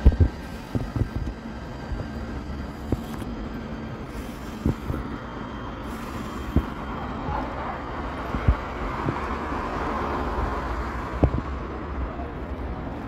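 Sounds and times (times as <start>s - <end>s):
wind thumps on microphone: 0.0s - 2.2s, 2.8s - 3.3s, 4.2s - 5.2s, 5.9s - 7.0s, 8.0s - 11.6s
distant tram approaching: 0.0s - 13.0s
street traffic: 0.0s - 13.0s.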